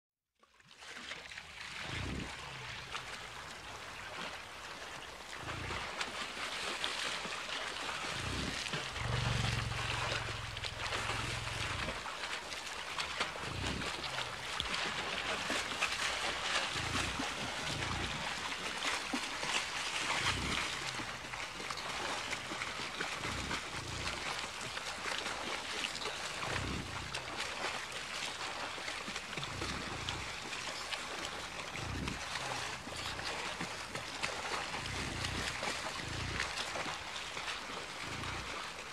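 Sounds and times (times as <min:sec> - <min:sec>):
short low rumbles: 0:08.0 - 0:12.1, 0:13.2 - 0:15.6.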